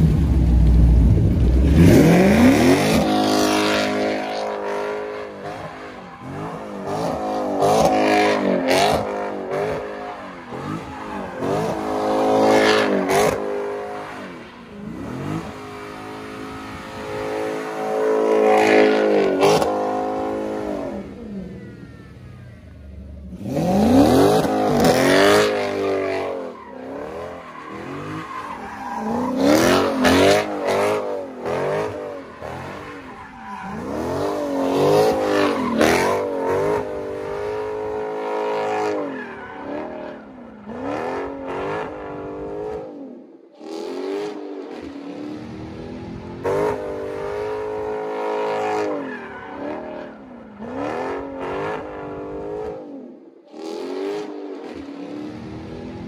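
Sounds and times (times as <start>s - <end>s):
car engine revving: 0.0s - 21.2s, 23.2s - 42.9s
tyres squealing on pavement: 4.6s - 16.6s, 23.5s - 37.0s, 37.7s - 40.3s, 47.6s - 50.7s.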